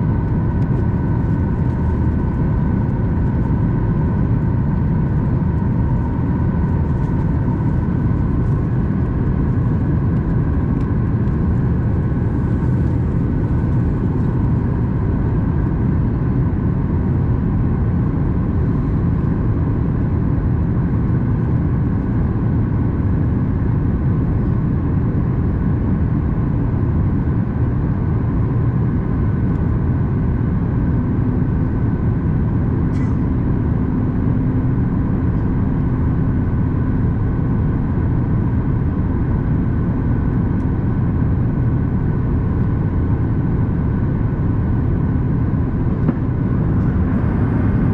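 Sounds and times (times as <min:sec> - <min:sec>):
airplane cabin rumble: 0:00.0 - 0:47.9
low hum: 0:30.7 - 0:47.9.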